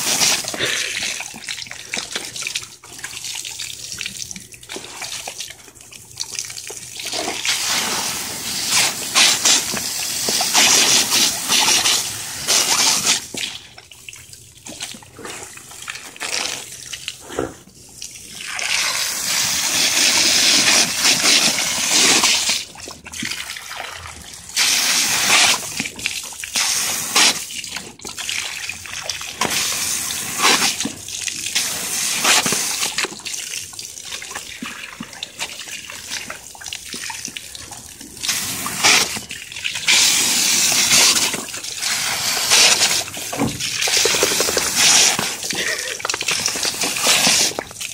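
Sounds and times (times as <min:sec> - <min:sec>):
hose water splashing on concrete: 0:00.0 - 0:47.9
dogs snapping at water: 0:25.2 - 0:47.9.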